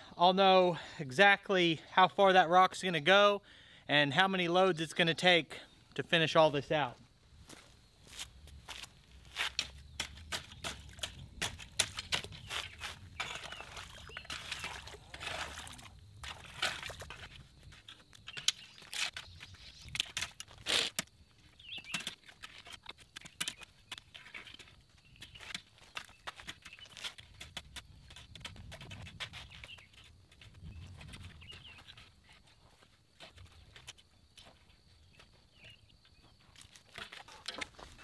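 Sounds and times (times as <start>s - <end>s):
shovel scraping wet dirt and stones: 8.1s - 34.5s.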